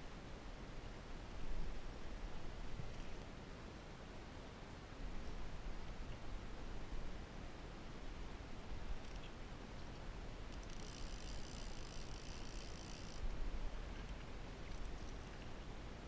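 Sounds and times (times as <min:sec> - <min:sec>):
fly reel ratchet buzzing: 0:10.5 - 0:13.2.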